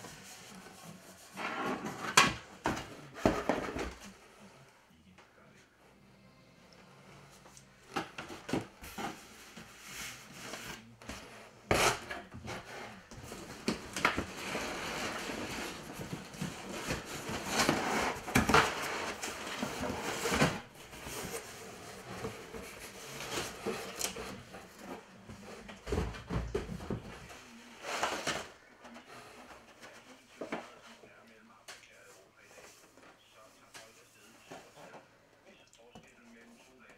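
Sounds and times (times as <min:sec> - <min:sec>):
paper rustling and crinkling: 0:07.9 - 0:35.0.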